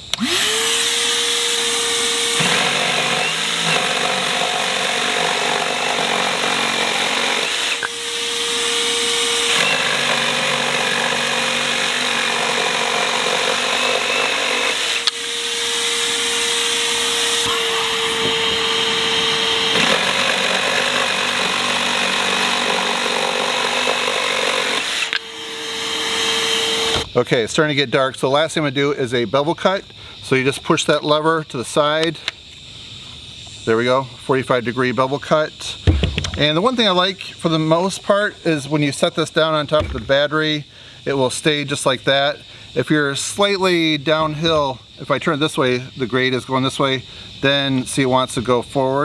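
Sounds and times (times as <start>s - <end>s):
jigsaw motor whining: 0.0s - 27.1s
jigsaw cutting wood: 0.1s - 27.1s.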